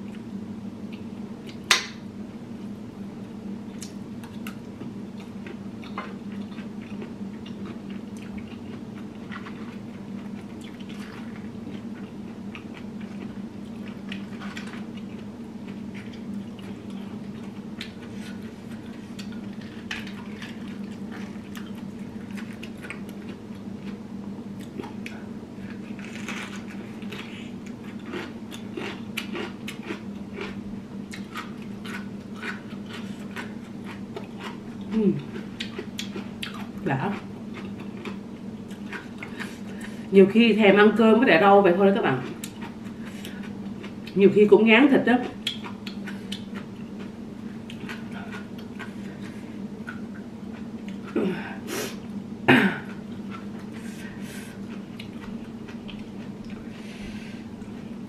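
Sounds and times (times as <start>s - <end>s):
steady low hum: 0.0s - 58.0s
person chewing vegetables: 3.7s - 24.0s, 24.6s - 40.1s, 42.1s - 44.2s, 45.2s - 58.0s.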